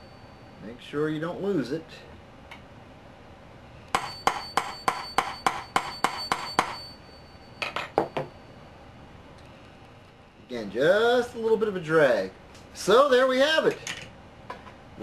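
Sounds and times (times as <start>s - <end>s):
hammer tapping metal tool: 3.9s - 7.0s, 7.6s - 8.3s.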